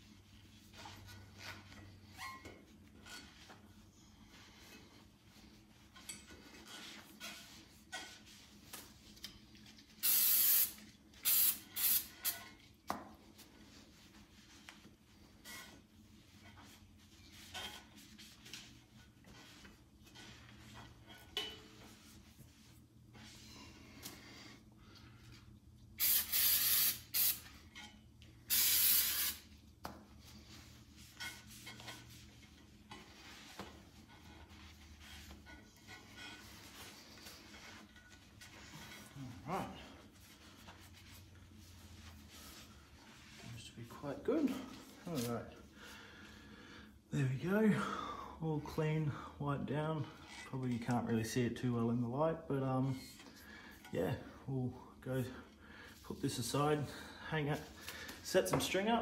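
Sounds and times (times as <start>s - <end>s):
aerosol can spraying: 10.0s - 12.4s, 26.0s - 27.5s, 28.5s - 29.5s
soft rubbing: 12.6s - 24.6s, 29.6s - 45.8s.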